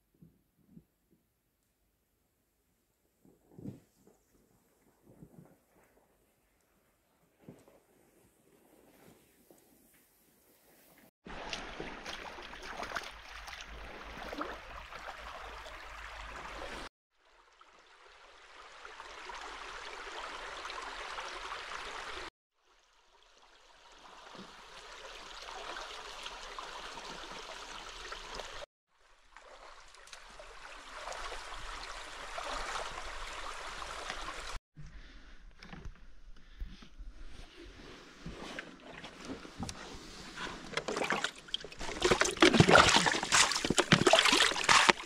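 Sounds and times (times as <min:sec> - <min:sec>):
running water rushing: 0:11.3 - 0:16.9, 0:29.3 - 0:34.6, 0:40.8 - 0:45.0.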